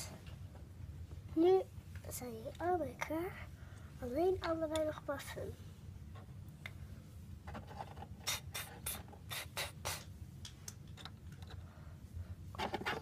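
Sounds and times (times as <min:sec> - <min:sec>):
child making spray hisses: 0:08.2 - 0:10.1.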